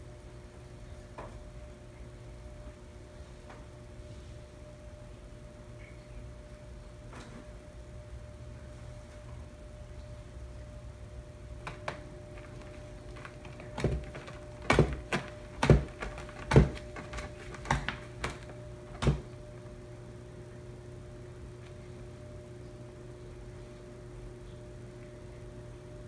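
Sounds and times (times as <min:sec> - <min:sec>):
faint steady hum: 0:00.0 - 0:26.0
sharp knocks and thumps: 0:11.6 - 0:19.4.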